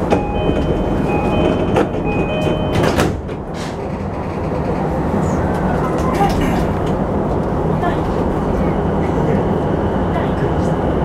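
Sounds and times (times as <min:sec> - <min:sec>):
train doors knocking shut: 0:00.0 - 0:04.8
two-tone door chime: 0:00.1 - 0:03.1.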